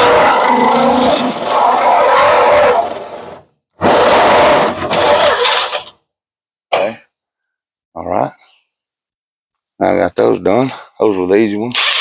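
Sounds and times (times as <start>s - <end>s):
electric drill boring through metal: 11.8s - 12.0s.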